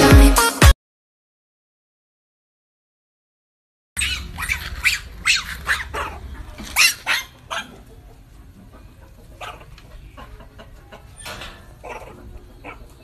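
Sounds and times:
dog barking: 0:04.0 - 0:08.0, 0:09.4 - 0:09.7, 0:11.8 - 0:13.0.

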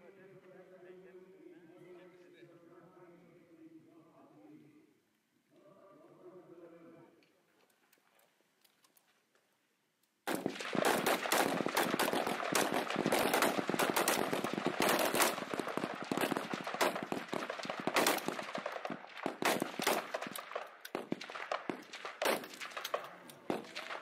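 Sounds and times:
many rifles firing: 0:10.3 - 0:24.0.

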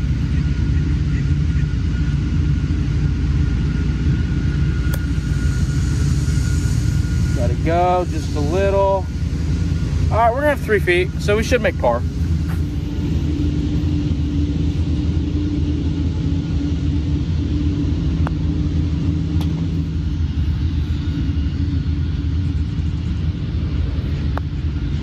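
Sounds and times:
low engine rumble: 0:00.0 - 0:25.0.

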